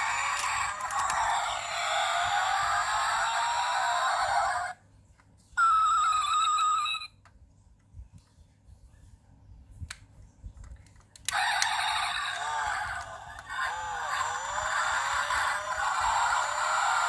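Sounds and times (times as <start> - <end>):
toy car sound effect from tiny speaker: 0.0 - 4.8, 5.6 - 7.1, 11.3 - 17.0.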